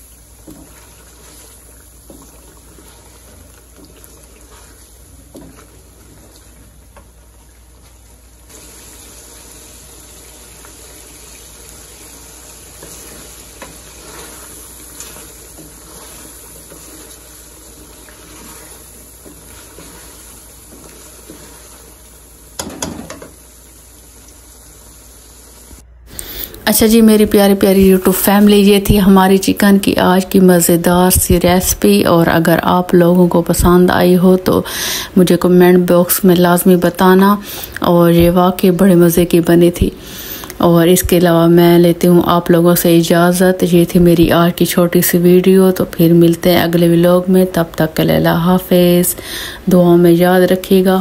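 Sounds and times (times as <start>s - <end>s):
wooden spoon stirring: 0.0s - 24.8s
gravy sizzling and bubbling in pot: 0.0s - 51.0s.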